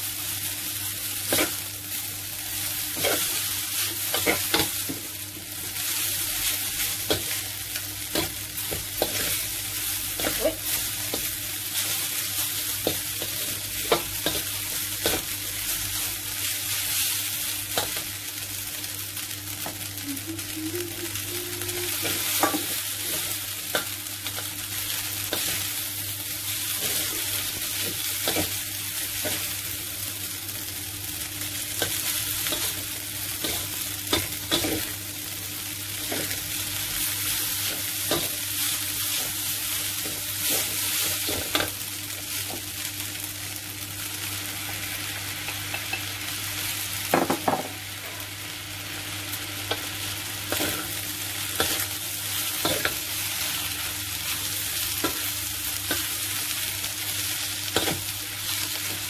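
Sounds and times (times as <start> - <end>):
noodles sizzling in a wok: 0.0 - 59.0
spatula scraping and knocking wok: 2.9 - 5.1, 6.3 - 15.4, 22.0 - 25.8, 26.6 - 29.6, 31.7 - 35.0, 49.7 - 59.0.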